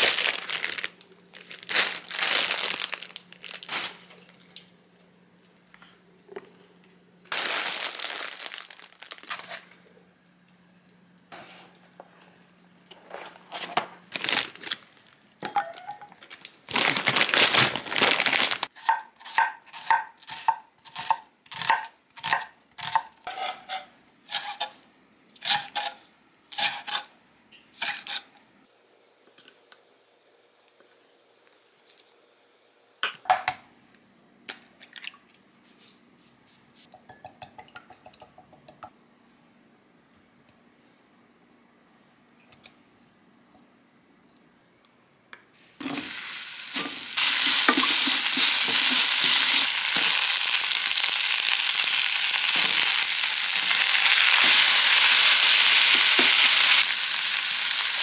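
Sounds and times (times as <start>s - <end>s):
plastic packet tearing: 0.0s - 4.4s, 7.3s - 9.6s, 14.1s - 15.2s, 16.2s - 18.7s
plastic packet crinkling: 0.0s - 4.6s, 7.3s - 9.8s, 14.1s - 18.7s, 47.2s - 56.7s.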